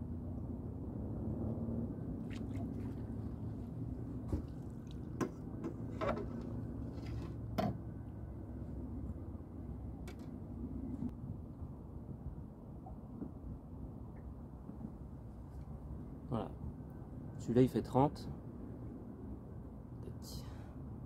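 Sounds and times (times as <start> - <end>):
low steady rumble: 0.0 - 21.0
water splashing and dripping: 2.2 - 6.5.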